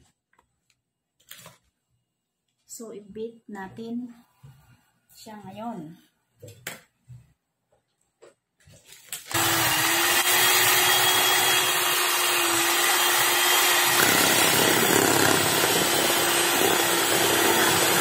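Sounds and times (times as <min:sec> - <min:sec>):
electric hand mixer whipping: 0:09.3 - 0:18.0.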